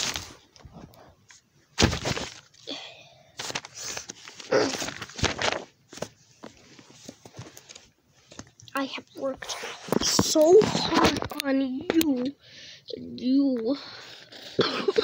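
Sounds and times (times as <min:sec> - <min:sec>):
paper rustling and thumping: 0:01.8 - 0:02.6, 0:03.4 - 0:08.5.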